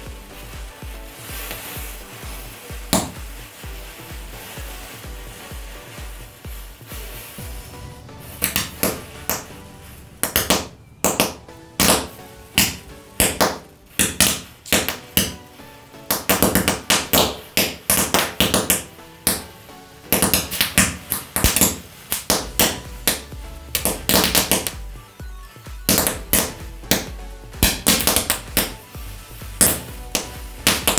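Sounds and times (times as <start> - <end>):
music with sharp percussive hits: 0.0 - 30.9.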